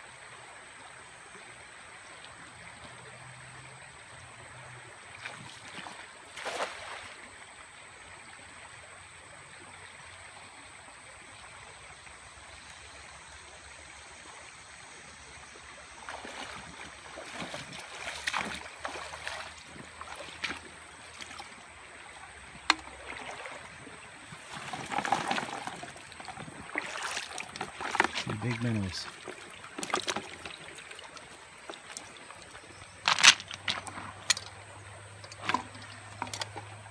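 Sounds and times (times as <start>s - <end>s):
flowing water: 0.0s - 36.9s
net hauled through water sloshing: 5.1s - 7.3s, 16.0s - 36.9s
net splashing into water: 5.2s - 7.2s, 16.1s - 32.2s.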